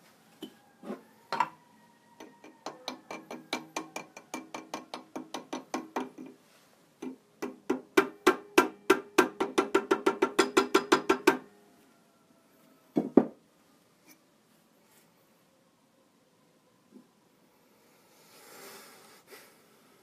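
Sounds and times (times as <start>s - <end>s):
small hammer tapping with ring: 2.2s - 6.4s, 7.0s - 11.4s.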